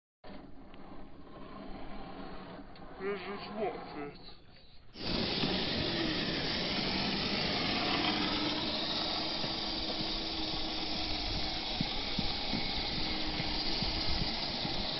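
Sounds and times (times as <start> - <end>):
faint electric motor whine: 0.3 - 14.9
toy truck tyres hissing: 0.3 - 14.9
grit ticks: 5.0 - 14.9.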